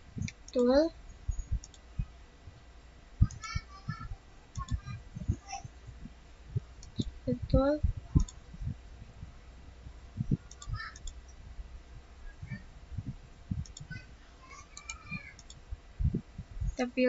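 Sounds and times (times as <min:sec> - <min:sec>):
low steady hum: 0:00.0 - 0:17.0
computer mouse clicks: 0:01.4 - 0:01.9, 0:04.5 - 0:04.9, 0:08.2 - 0:08.4, 0:10.4 - 0:11.3, 0:13.6 - 0:14.0, 0:14.8 - 0:15.6.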